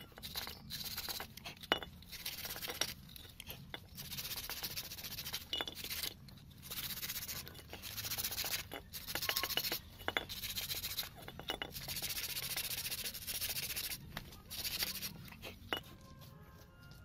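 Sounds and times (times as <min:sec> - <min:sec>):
sandpaper rubbing on metal: 0:00.0 - 0:01.3, 0:04.0 - 0:15.6.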